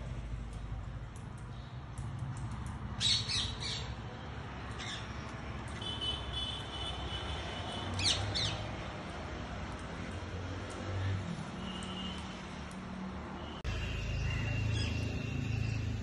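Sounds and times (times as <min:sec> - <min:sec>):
parakeets screeching squawks: 0:04.8 - 0:05.2, 0:08.0 - 0:08.6.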